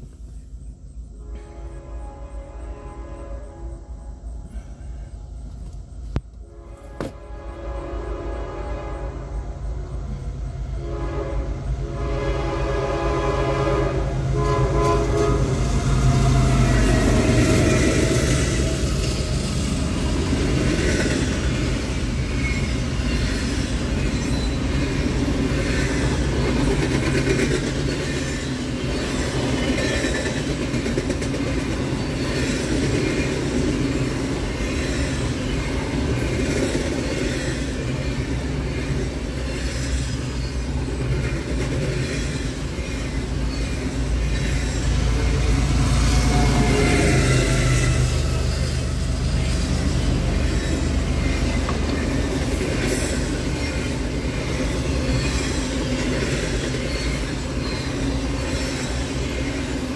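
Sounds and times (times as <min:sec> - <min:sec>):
locomotive horn: 0:01.2 - 0:04.4, 0:06.4 - 0:09.6, 0:10.7 - 0:18.2, 0:44.9 - 0:48.4
locomotive engine rumbling: 0:03.8 - 0:59.9
train wheels clickety-clack: 0:14.4 - 0:59.9.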